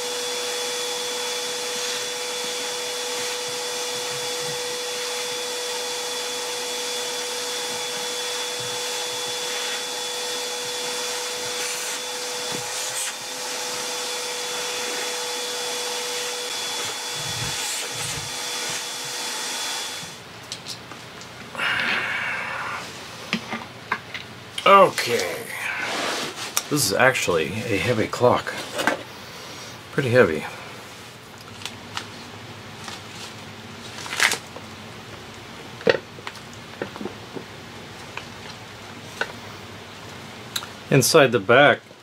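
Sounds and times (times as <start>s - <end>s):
shop vacuum motor whine: 0.0s - 20.3s.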